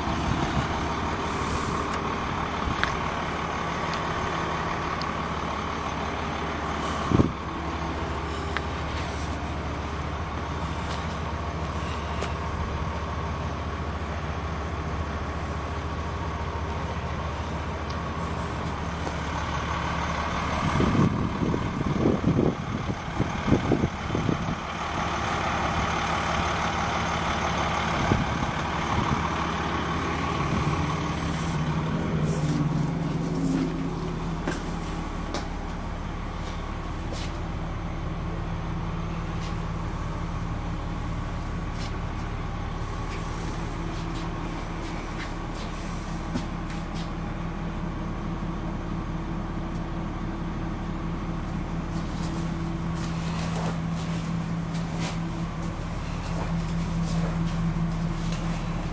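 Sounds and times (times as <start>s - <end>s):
diesel bus engine idling: 0.0s - 58.9s
engine knocks: 16.1s - 58.9s.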